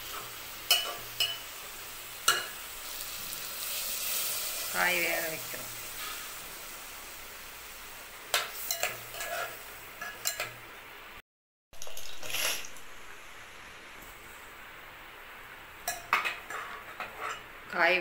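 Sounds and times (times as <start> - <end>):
pot simmering with hiss: 0.0 - 11.2, 11.8 - 18.0
metal utensil clinking pot: 0.7 - 1.4, 8.3 - 10.6, 15.8 - 17.4
liquid pouring splash: 11.8 - 12.8.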